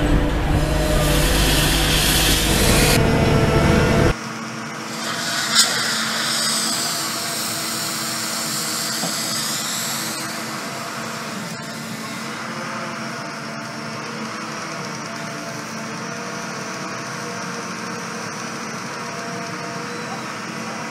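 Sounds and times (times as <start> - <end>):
machine mechanical rumble: 0.0 - 4.2
machine hum: 0.0 - 12.6
water spray hissing: 4.9 - 10.6.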